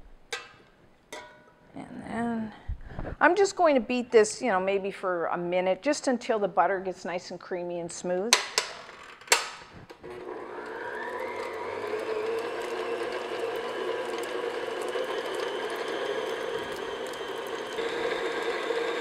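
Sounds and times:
stand mixer motor whine: 10.0s - 19.0s.

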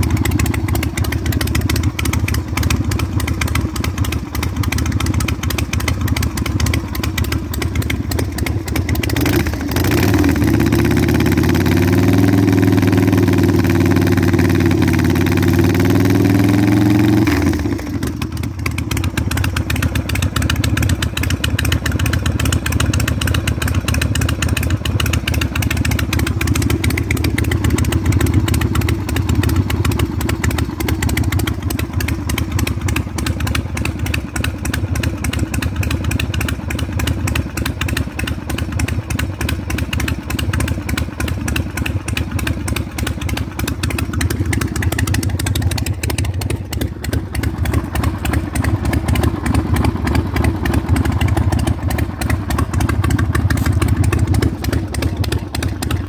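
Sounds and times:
motorcycle engine idling: 0.0s - 56.0s.

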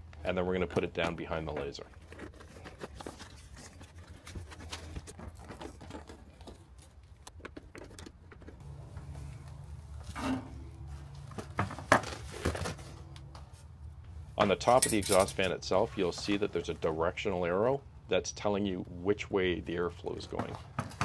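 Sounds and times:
duct clicks and crinkles: 0.8s - 8.6s
low hum: 8.6s - 11.5s.

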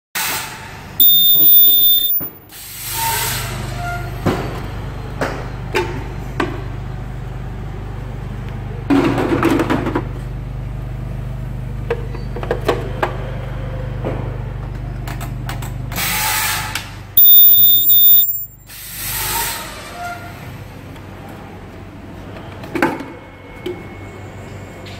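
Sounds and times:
ultrasonic welding whistle: 1.0s - 3.2s, 17.2s - 18.6s.

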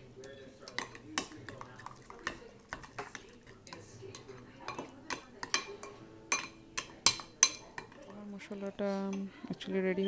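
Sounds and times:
spoon clinking against bowl: 0.2s - 8.2s.

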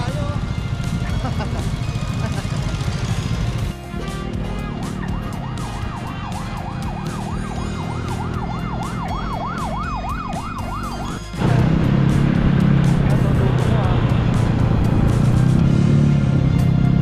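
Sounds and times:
siren sweeping up and down: 4.8s - 11.7s.

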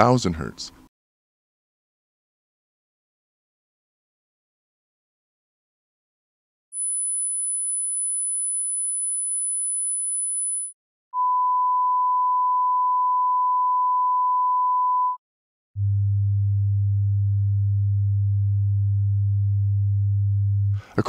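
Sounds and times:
sine wave test tones: 6.8s - 15.2s, 15.8s - 20.7s.

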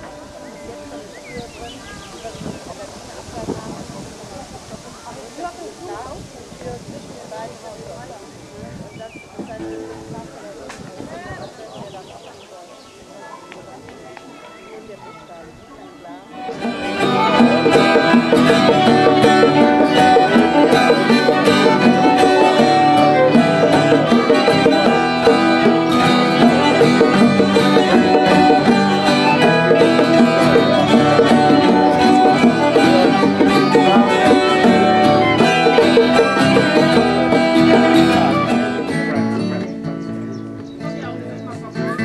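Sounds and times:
bluegrass string band music: 0.0s - 3.2s, 13.2s - 42.0s.

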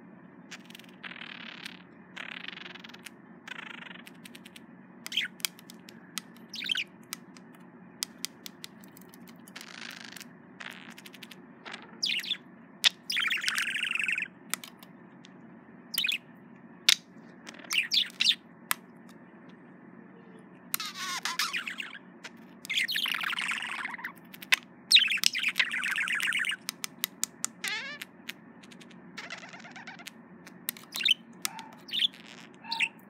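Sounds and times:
budgerigar chirping and warbling: 0.5s - 6.9s, 9.6s - 14.8s, 15.9s - 16.3s, 16.9s - 18.4s, 20.7s - 33.0s
sharp clicks: 3.8s - 10.3s, 10.9s - 15.4s, 22.3s - 27.7s, 29.7s - 32.1s.

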